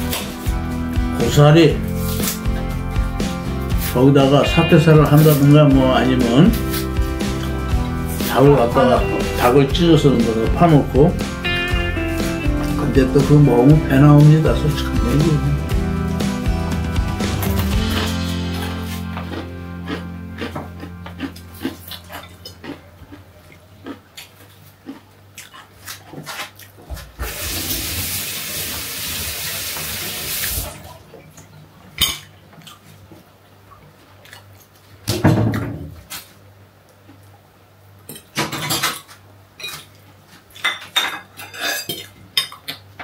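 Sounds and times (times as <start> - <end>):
tap water running: 27.2 - 31.0
fork and plates clinking: 40.6 - 42.8.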